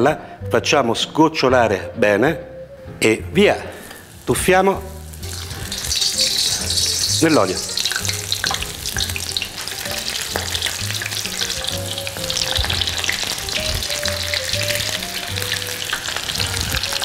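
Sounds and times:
prawns deep-frying in hot oil: 3.8 - 17.0.

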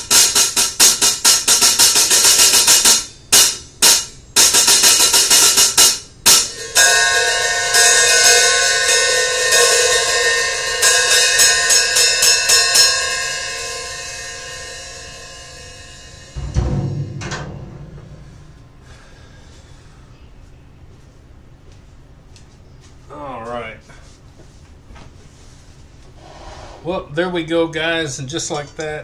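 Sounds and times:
hi-hat cymbals struck with drumsticks: 0.0 - 18.8
low thud: 16.4 - 18.9.

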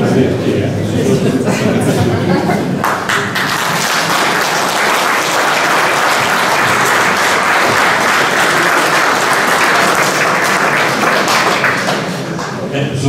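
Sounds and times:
audience applauding: 2.7 - 12.7.

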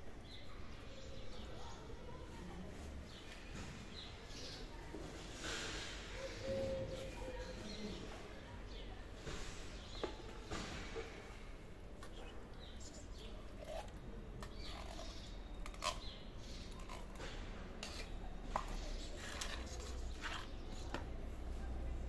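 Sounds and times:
food scooped into plastic dish: 12.0 - 21.2.

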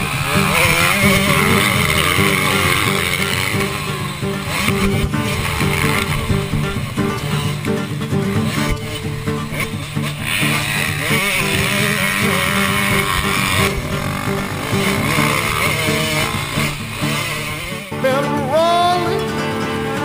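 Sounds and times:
dirt bike engines revving: 0.0 - 20.0
music playing: 0.0 - 20.0.

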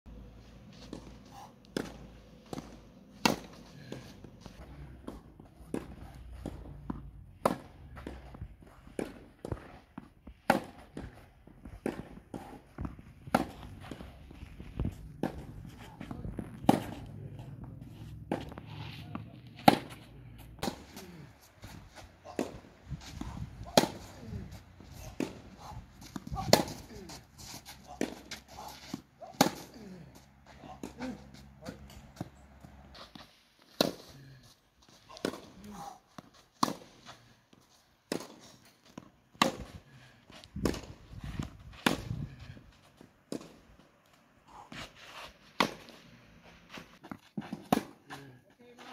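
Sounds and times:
footsteps on clay: 0.1 - 43.8, 44.5 - 48.9
racket striking tennis ball: 0.9 - 4.1, 5.0 - 14.1, 14.8 - 17.1, 18.2 - 29.9, 32.9 - 34.2, 35.1 - 37.2, 38.1 - 42.5, 43.3 - 43.6, 44.7 - 46.1, 46.7 - 48.0
tennis ball bouncing: 0.9 - 21.0, 21.7 - 27.2, 27.8 - 29.7, 36.2 - 42.2, 46.7 - 48.0.

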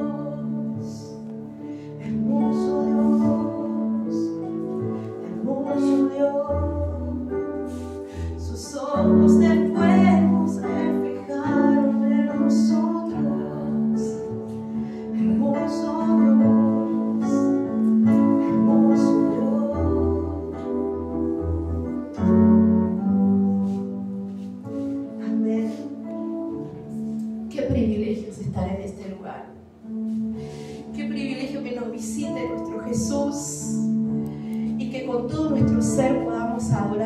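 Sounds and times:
woman singing into a microphone: 0.0 - 1.3, 2.0 - 4.6, 5.2 - 21.1, 34.8 - 37.0
electronic keyboard chords: 0.0 - 37.0.

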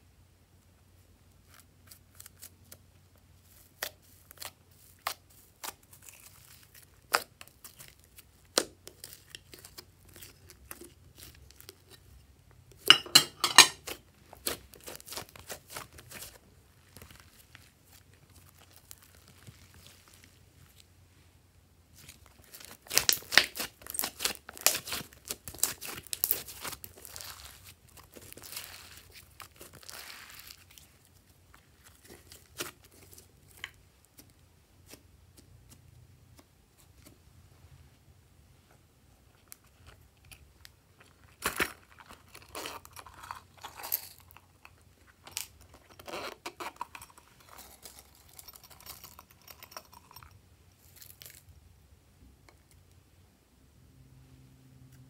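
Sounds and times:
slime crackling and popping: 3.5 - 12.1, 13.8 - 20.8, 22.0 - 35.0
plastic sequins crinkling: 21.9 - 34.3.

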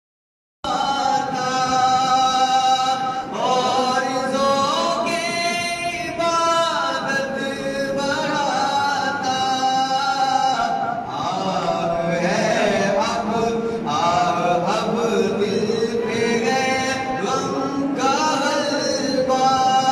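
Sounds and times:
man chanting: 0.7 - 19.9.

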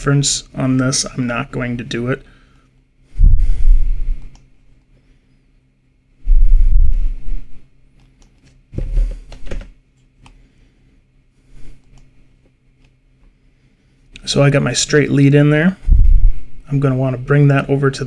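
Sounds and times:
dull low thumps: 3.1 - 4.4, 6.2 - 7.7, 15.8 - 16.7.

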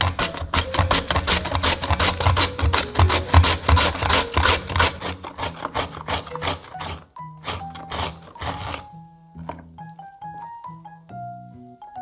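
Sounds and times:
radish rasping on grater: 0.0 - 8.9.

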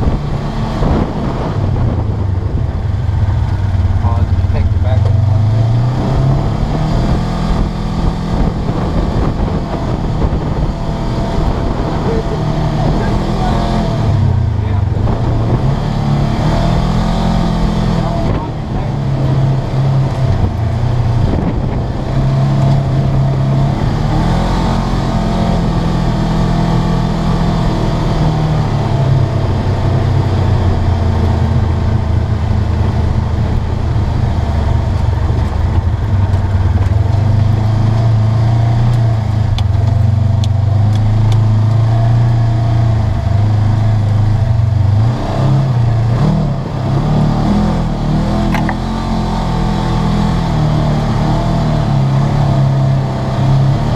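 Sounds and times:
off-road vehicle engine running: 0.0 - 53.9
wind noise: 0.0 - 53.9.

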